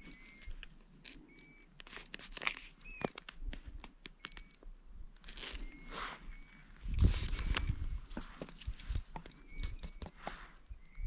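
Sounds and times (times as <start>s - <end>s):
bird whistling: 0.0s - 0.6s, 1.3s - 1.7s, 5.6s - 6.7s, 9.3s - 11.0s
plastic map case crinkling: 0.0s - 4.6s, 5.2s - 6.0s.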